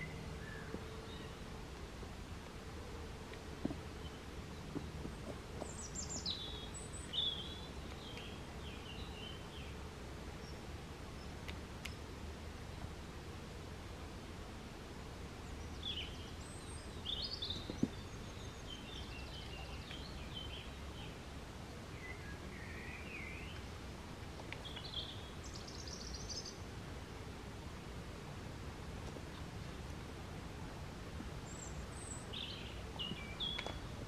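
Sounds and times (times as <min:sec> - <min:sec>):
small birds singing: 0:00.0 - 0:01.6, 0:02.4 - 0:13.2, 0:15.4 - 0:23.7, 0:24.3 - 0:26.7, 0:31.3 - 0:34.0.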